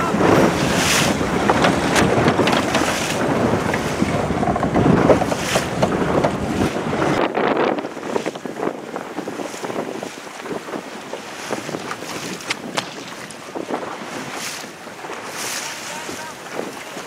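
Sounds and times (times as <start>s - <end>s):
water washing along hull: 0.0s - 17.0s
wind buffeting microphone: 0.0s - 17.0s
short knocks and clicks: 0.9s - 6.5s.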